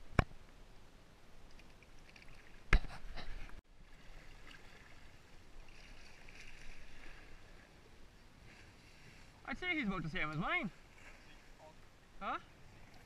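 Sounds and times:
water lapping against kayak hull: 0:01.6 - 0:13.0.

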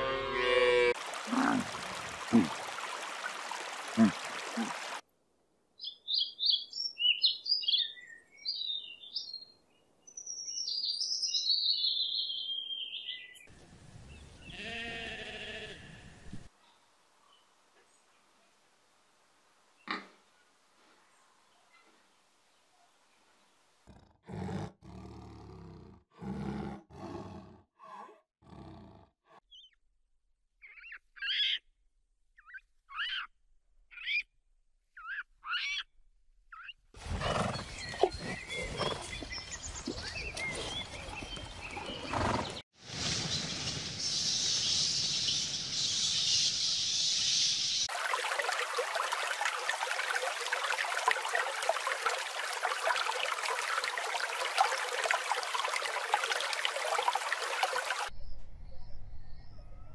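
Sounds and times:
flowing water: 0:01.0 - 0:05.0, 0:47.8 - 0:58.1
lion roaring grunts: 0:23.9 - 0:29.1.

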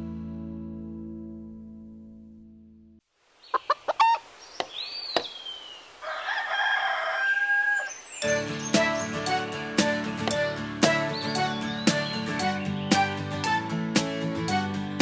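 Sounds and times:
cartoon chicken calls: 0:03.5 - 0:04.3
music tune: 0:08.2 - 0:15.0.

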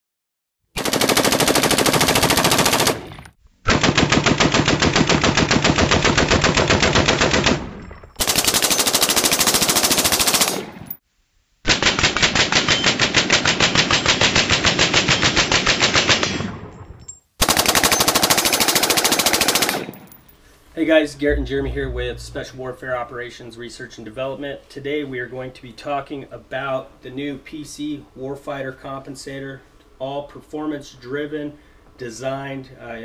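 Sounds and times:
automatic rifle fire: 0:03.7 - 0:10.9, 0:17.4 - 0:20.2.

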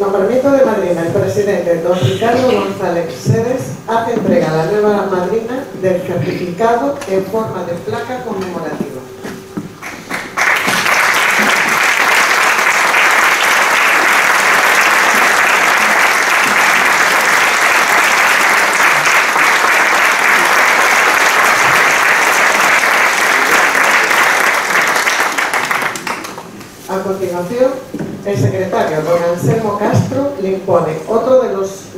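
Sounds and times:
audience applauding: 0:09.8 - 0:26.6.

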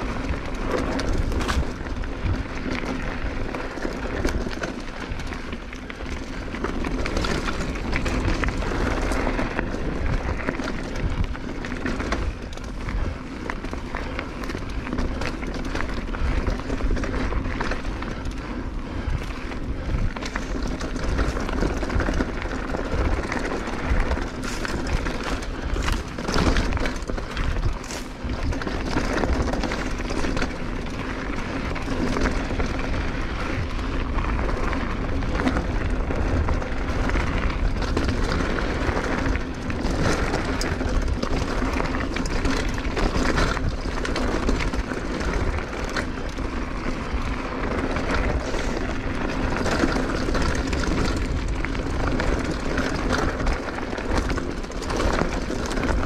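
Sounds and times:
bike rattling over bumps: 0:00.0 - 0:56.0
rushing wind: 0:00.0 - 0:56.0
tyre rumble on gravel: 0:19.0 - 0:56.0.

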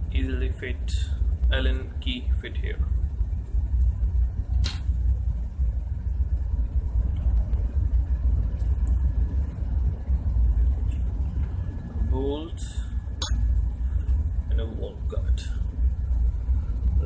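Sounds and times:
low rumble: 0:01.0 - 0:12.1, 0:15.5 - 0:17.0.

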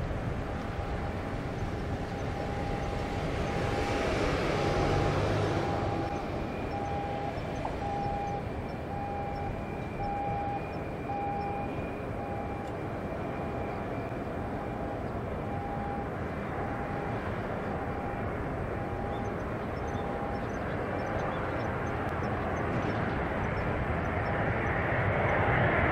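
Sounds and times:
distant jet aircraft drone: 0:00.0 - 0:25.9
short beeps: 0:02.2 - 0:03.1, 0:05.6 - 0:12.7, 0:15.5 - 0:17.2, 0:18.8 - 0:20.6.

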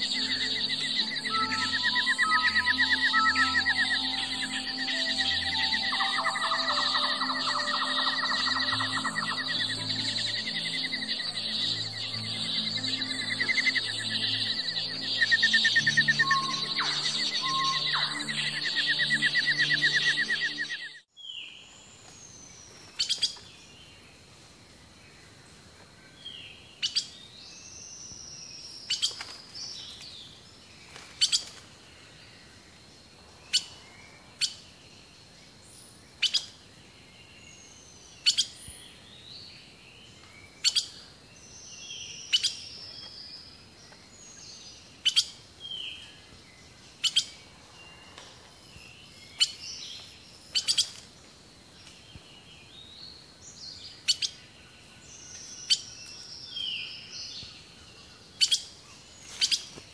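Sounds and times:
faint steady high tone: 0:00.0 - 0:21.1
bird-like chirps: 0:00.0 - 0:24.0, 0:33.4 - 0:51.2, 0:51.8 - 0:59.9.

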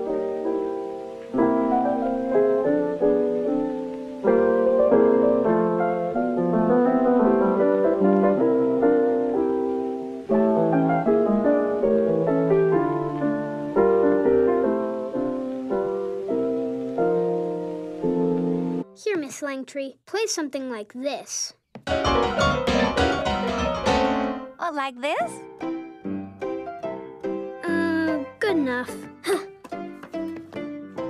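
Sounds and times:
piano music: 0:00.0 - 0:19.0, 0:21.8 - 0:24.6, 0:25.2 - 0:31.0.

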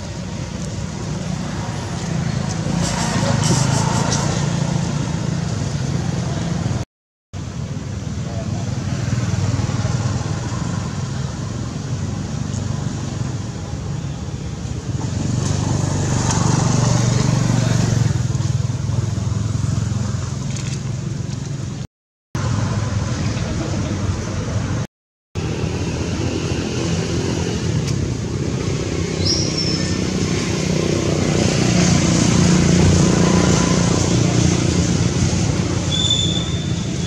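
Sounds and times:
outdoor rumble and hiss: 0:00.0 - 0:06.8, 0:07.4 - 0:37.0
short high whistles: 0:35.9 - 0:37.0.

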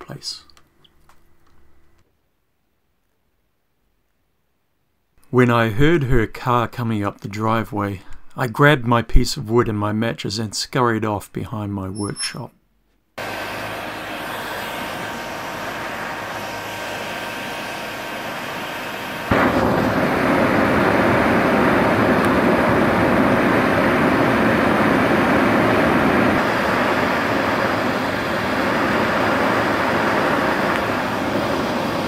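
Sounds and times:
heat gun blowing air: 0:13.2 - 0:23.8.

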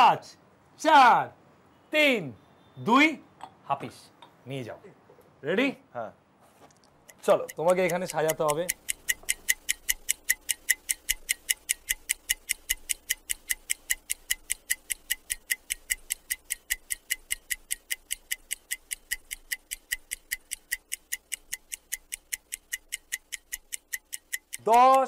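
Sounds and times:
timer clock ticking fast: 0:07.1 - 0:25.0.

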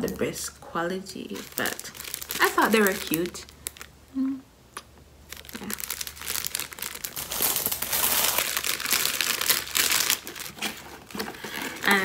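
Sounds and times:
plastic packaging crinkling: 0:01.1 - 0:04.0, 0:05.2 - 0:12.0.

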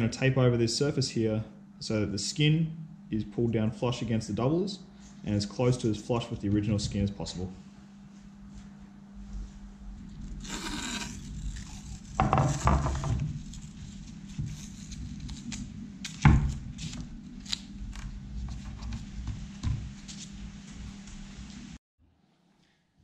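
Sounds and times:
masking tape rasping and tearing: 0:10.2 - 0:12.6.

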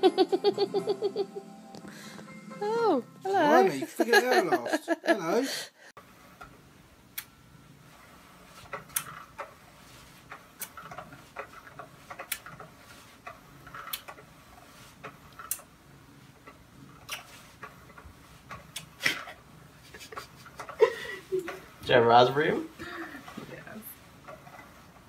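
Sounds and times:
room hum: 0:00.0 - 0:25.0.

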